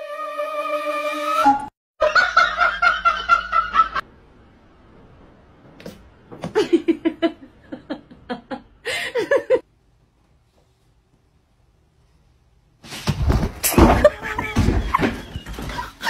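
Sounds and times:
people laughing: 13.9s - 16.0s.

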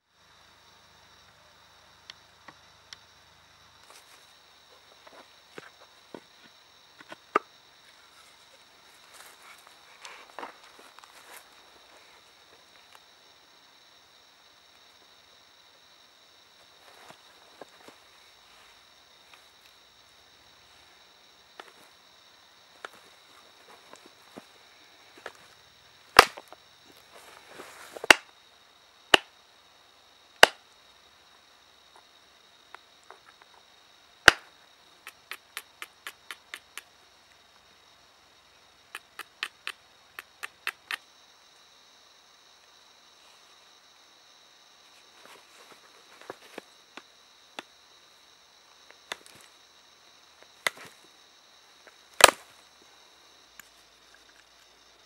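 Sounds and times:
flint cracking: 26.2s - 26.6s, 34.2s - 34.4s, 52.2s - 52.5s
knapping strikes on flint: 26.2s - 26.6s, 28.0s - 28.3s, 29.1s - 29.3s, 30.4s - 30.6s, 34.2s - 34.5s, 39.0s - 41.0s, 52.2s - 52.5s.

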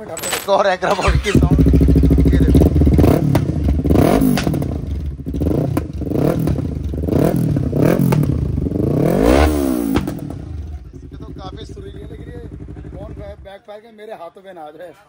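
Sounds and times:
motorcycle engine revving: 0.9s - 13.5s
exhaust backfire pops: 3.0s - 10.7s.

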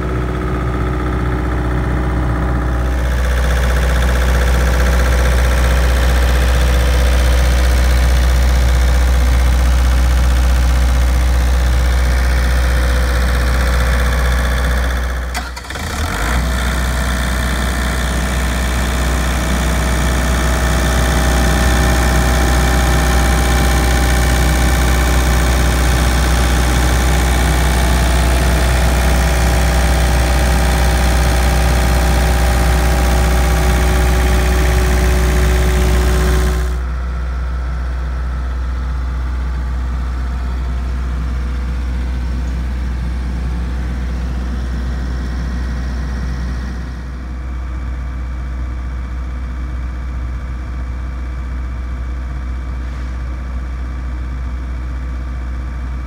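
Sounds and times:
diesel generator humming: 0.0s - 56.0s.

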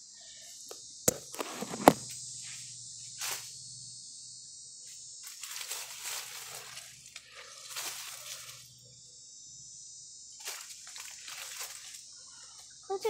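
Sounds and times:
high insect drone: 0.0s - 13.0s
rustling: 5.2s - 8.7s, 10.4s - 12.0s.

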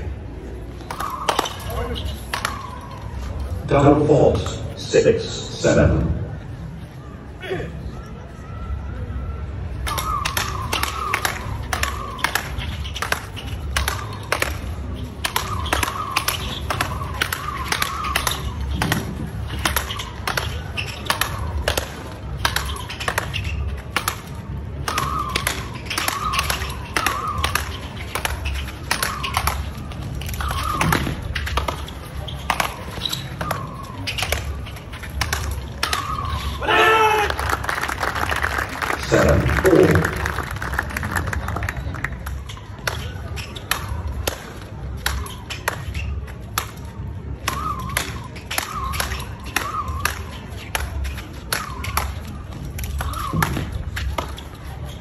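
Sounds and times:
short squeaks: 22.4s - 24.0s, 24.9s - 36.7s.

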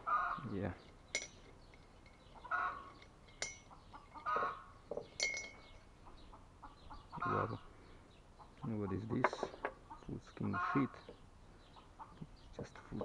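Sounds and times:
glass bottle clinks and clicks: 1.1s - 5.7s.

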